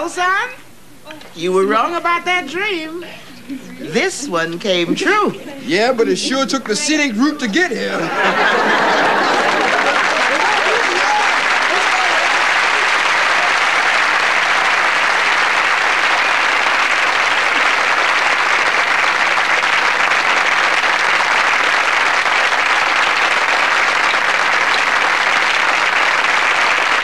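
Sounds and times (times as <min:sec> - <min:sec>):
audience applauding: 0:07.8 - 0:27.0.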